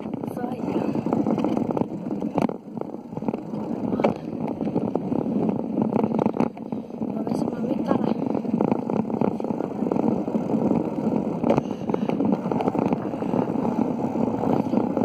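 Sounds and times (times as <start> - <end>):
quick crackles: 0.0 - 15.0
wind buffeting microphone: 0.0 - 15.0.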